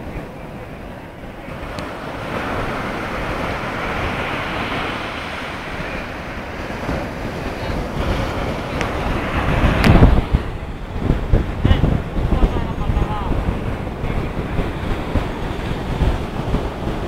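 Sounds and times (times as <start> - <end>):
surf breaking on beach: 0.0 - 17.0
wind buffeting microphone: 0.0 - 17.0.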